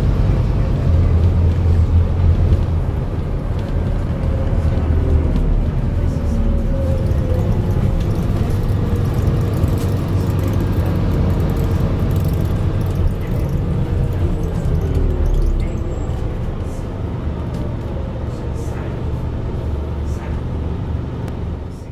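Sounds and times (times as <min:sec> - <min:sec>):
bus engine rumbling: 0:00.0 - 0:21.9.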